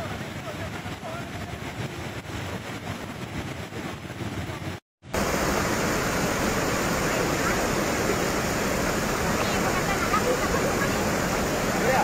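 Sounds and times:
flash flood torrent roaring: 0:05.1 - 0:12.0.

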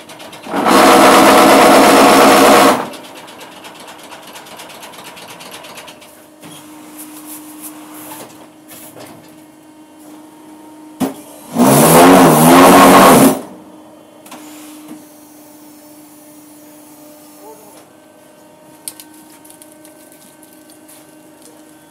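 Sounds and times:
paving block machine humming: 0:00.0 - 0:21.9.

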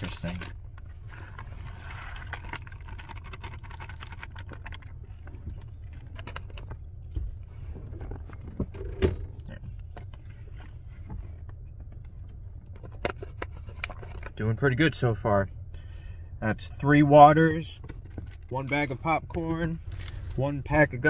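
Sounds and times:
steady low rumble: 0:00.0 - 0:21.0
snack bag crinkling: 0:01.8 - 0:04.9
popcorn crunching: 0:02.0 - 0:04.9.

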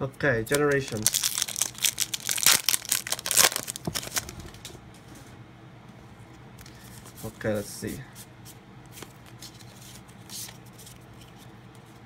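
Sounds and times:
foil wrapper tearing and crinkling: 0:00.5 - 0:04.6.

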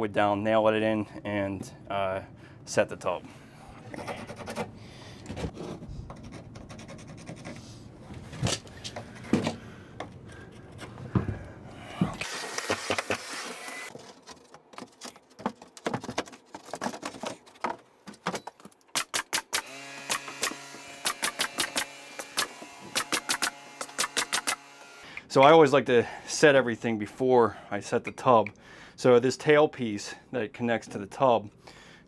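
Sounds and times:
pencil scratching on plywood: 0:03.9 - 0:04.8, 0:05.5 - 0:07.8
pneumatic nailer clacking: 0:12.2 - 0:13.9, 0:18.9 - 0:25.0
sharp clicks: 0:18.8 - 0:24.6.

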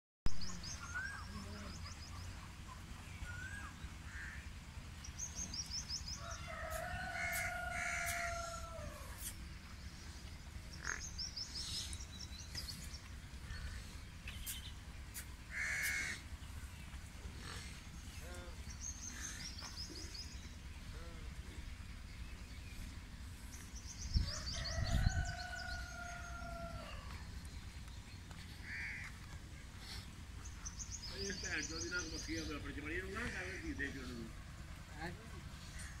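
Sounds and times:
small birds chirping: 0:00.3 - 0:36.0
low hum: 0:00.4 - 0:31.1
animal long drawn-out call: 0:06.3 - 0:09.4, 0:15.5 - 0:16.3.

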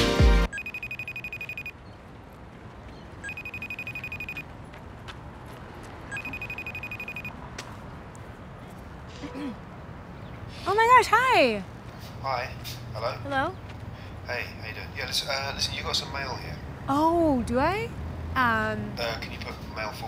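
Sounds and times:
music: 0:00.0 - 0:00.5
mobile phone ringing: 0:00.5 - 0:01.8, 0:03.2 - 0:04.4, 0:06.1 - 0:07.3.

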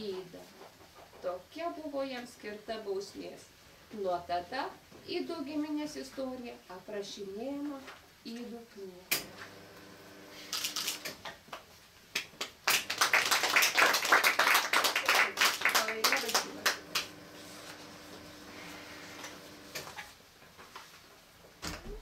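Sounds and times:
small audience applauding: 0:12.2 - 0:17.2.

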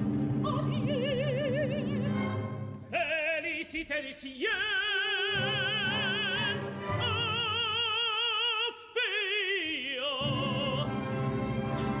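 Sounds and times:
orchestra playing: 0:00.0 - 0:02.9, 0:05.2 - 0:08.1, 0:10.2 - 0:12.0
operatic tenor singing: 0:00.1 - 0:12.0.

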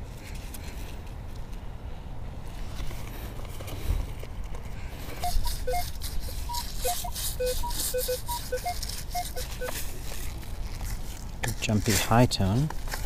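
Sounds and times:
metal detector beeps: 0:05.2 - 0:09.9.

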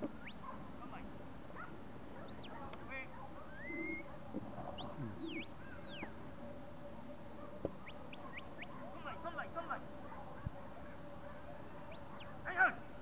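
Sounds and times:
shepherd's whistle commands: 0:03.5 - 0:04.1, 0:04.8 - 0:06.1.

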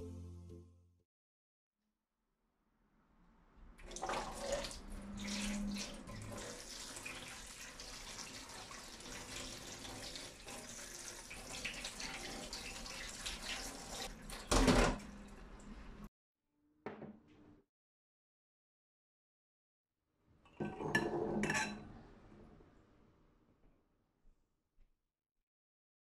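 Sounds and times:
tap water running: 0:03.8 - 0:15.9.

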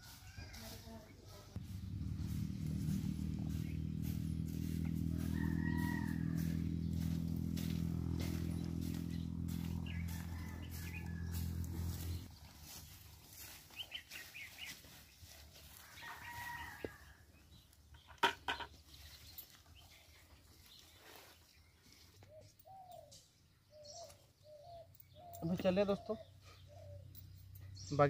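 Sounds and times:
low steady drone: 0:01.6 - 0:12.3
rooster crowing: 0:02.2 - 0:12.3, 0:15.7 - 0:17.2.

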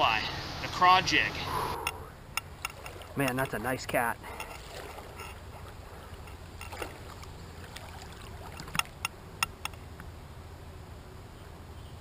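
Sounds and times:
water splashing: 0:02.4 - 0:09.6.

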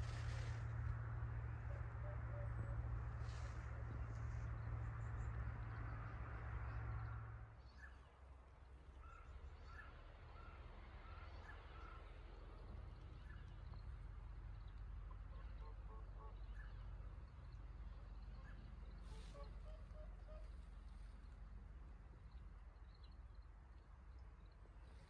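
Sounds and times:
low steady rumble: 0:00.0 - 0:25.0
ducks calling: 0:17.8 - 0:21.2.

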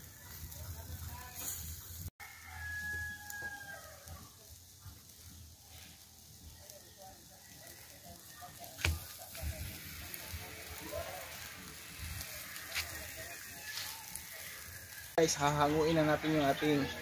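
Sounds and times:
chicken crackling on charcoal grill: 0:00.0 - 0:17.0
rooster crowing: 0:02.2 - 0:04.3, 0:12.2 - 0:15.1.

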